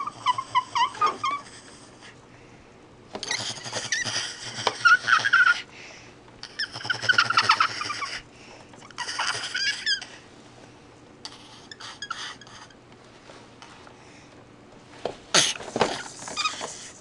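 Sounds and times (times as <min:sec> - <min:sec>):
baby squeaking: 0:00.0 - 0:01.6, 0:08.9 - 0:10.1, 0:15.4 - 0:16.8.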